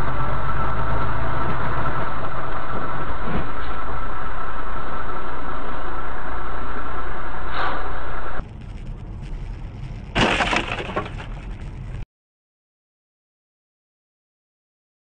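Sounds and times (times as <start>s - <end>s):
vehicle running and road noise: 0.0s - 12.0s
car collision impact: 10.1s - 11.4s.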